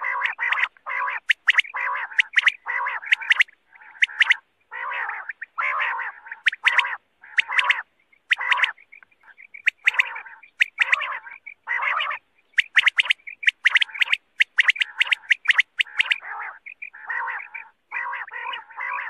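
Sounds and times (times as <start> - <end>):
quails rasping calls: 0.0 - 19.0
quails whistling calls: 0.0 - 19.0.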